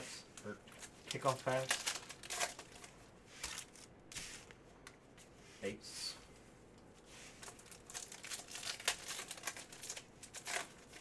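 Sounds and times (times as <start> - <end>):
foil wrapper tearing and crinkling: 1.1 - 3.7, 7.4 - 11.0.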